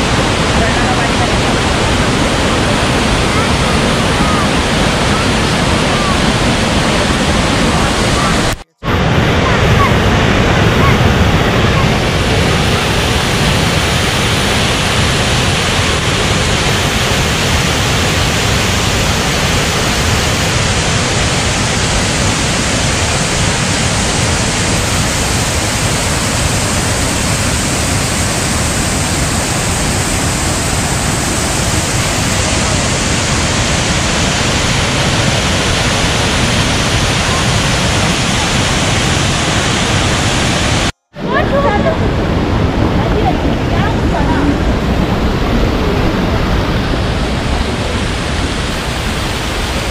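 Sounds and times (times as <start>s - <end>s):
waterfall rushing over boulders: 0.0s - 49.9s.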